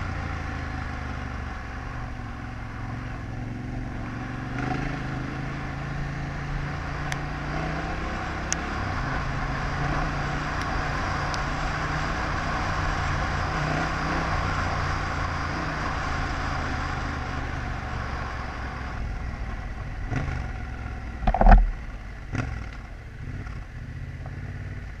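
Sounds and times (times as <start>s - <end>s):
motorcycle engine running: 0.0s - 25.0s
wind and tyre noise: 0.0s - 25.0s
sharp thumps: 21.2s - 21.8s.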